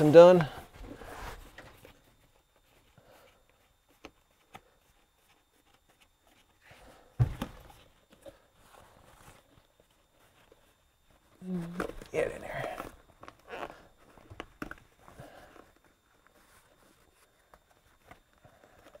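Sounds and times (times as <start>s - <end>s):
thump: 7.2s - 7.6s.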